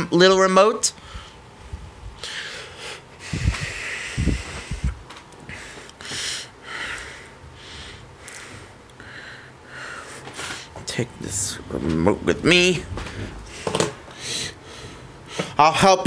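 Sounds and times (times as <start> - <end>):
hissy breathing: 2.2 - 10.8, 13.0 - 15.6
microphone handling noise: 3.3 - 5.2, 10.8 - 14.1
dull bumps: 11.2 - 14.0.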